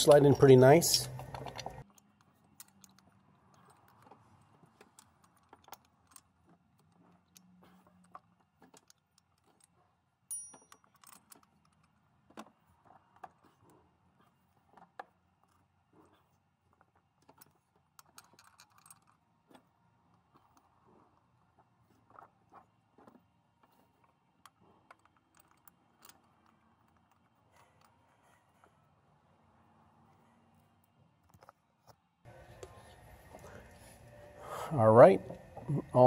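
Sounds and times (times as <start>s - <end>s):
metal bolts clicking and tapping: 0.0s - 12.5s, 24.4s - 28.7s
metallic ring: 10.3s - 11.1s.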